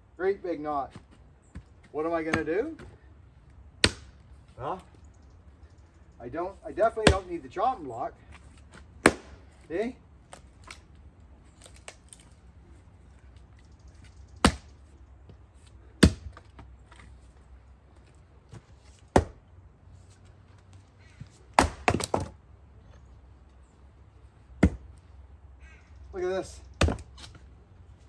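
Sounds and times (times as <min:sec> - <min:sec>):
axe chopping wood: 0:02.2 - 0:02.9, 0:03.8 - 0:04.2, 0:06.8 - 0:07.4, 0:08.7 - 0:09.6, 0:14.4 - 0:14.8, 0:15.9 - 0:17.0, 0:19.1 - 0:19.4, 0:21.5 - 0:22.4, 0:24.6 - 0:24.9, 0:26.7 - 0:27.4.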